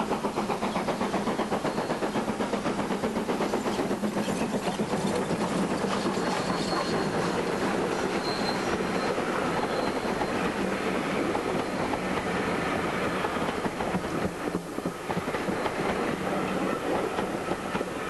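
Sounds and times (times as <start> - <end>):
train wheels rumbling and clattering: 0.0 - 18.0
faint high wheel squeal: 5.1 - 10.6, 11.5 - 12.2.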